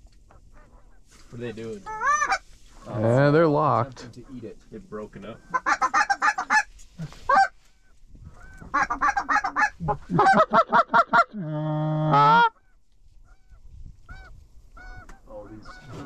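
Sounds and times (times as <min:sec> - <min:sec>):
goose call clucks and honks: 0:01.8 - 0:02.4, 0:05.3 - 0:16.0.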